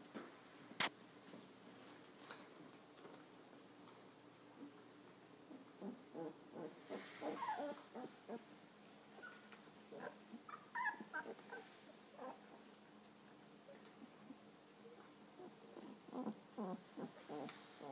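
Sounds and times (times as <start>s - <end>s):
puppies whimpering: 5.8s - 8.5s, 9.2s - 12.7s, 15.4s - 17.9s
puppy squealing: 7.2s - 8.4s, 10.0s - 12.5s.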